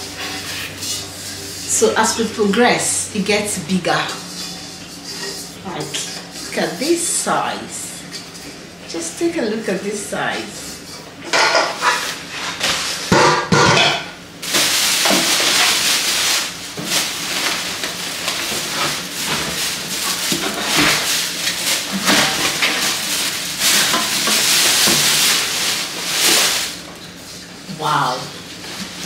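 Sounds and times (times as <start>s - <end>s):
cooking pots knocking and clinking: 13.1s - 14.2s
plastic wrapping crinkling: 14.4s - 27.5s.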